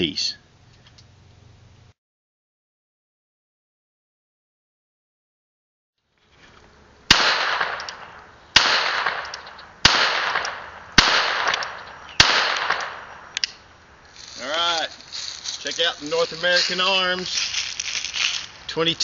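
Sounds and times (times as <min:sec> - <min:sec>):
revolver shots echoing: 0:07.1 - 0:13.6.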